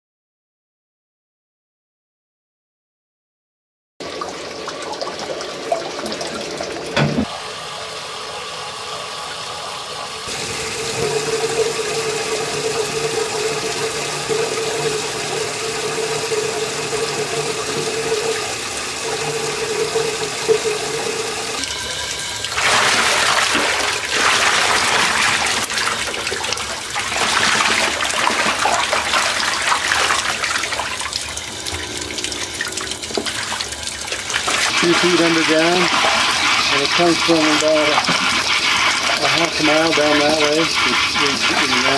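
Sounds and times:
water running and splashing: 0:04.0 - 0:41.9
steady hum: 0:28.4 - 0:41.9.

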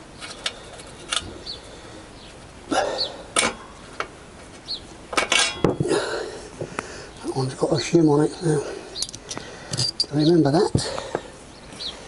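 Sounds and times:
bird chirping: 0:04.6 - 0:04.9, 0:11.5 - 0:12.0
metal tools clinking: 0:05.2 - 0:05.7, 0:09.0 - 0:10.3.

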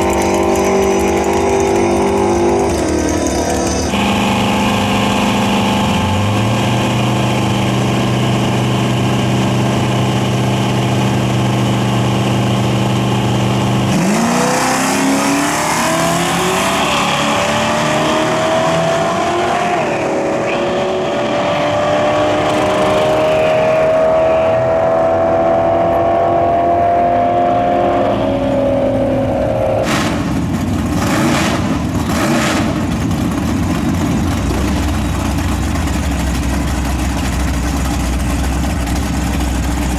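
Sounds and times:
race car launching full throttle: 0:00.0 - 0:11.6, 0:12.8 - 0:39.9
race cars idling: 0:00.0 - 0:14.2, 0:28.3 - 0:39.9.

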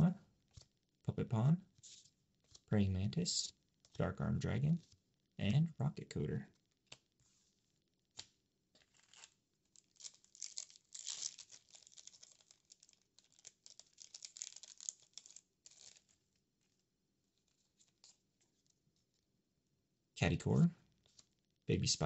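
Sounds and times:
foil wrapper ripping and crinkling: 0:08.8 - 0:16.2.

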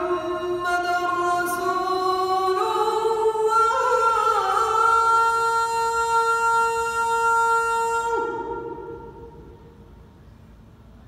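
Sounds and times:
man chanting call to prayer: 0:00.0 - 0:09.4.

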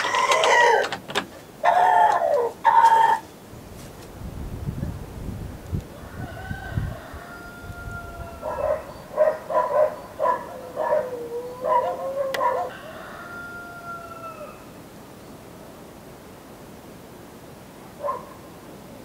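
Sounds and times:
rooster crowing: 0:00.0 - 0:00.9, 0:01.6 - 0:03.2, 0:05.9 - 0:14.8.

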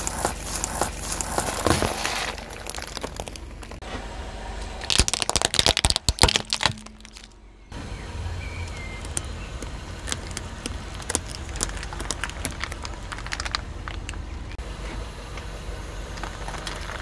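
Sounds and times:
plastic toys cracking under tyre: 0:00.0 - 0:03.8, 0:04.8 - 0:07.4, 0:08.7 - 0:14.6, 0:16.1 - 0:17.0.

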